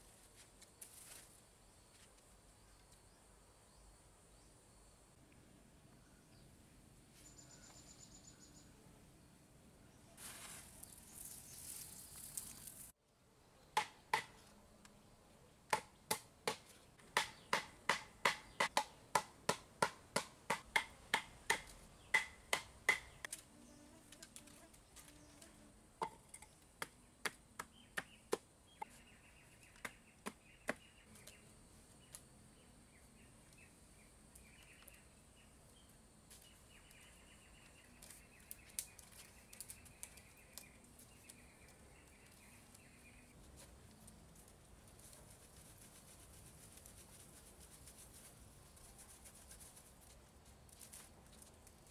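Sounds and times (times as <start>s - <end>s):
hand scraping through sand: 10.2s - 12.8s
sharp knocks of hand tool: 13.8s - 14.4s, 15.7s - 23.2s.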